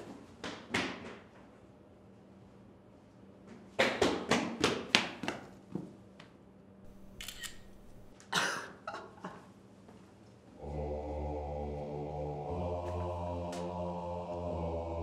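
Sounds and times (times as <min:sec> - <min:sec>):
sharp clicks: 0:06.9 - 0:08.1
thin high clicks: 0:06.9 - 0:08.1.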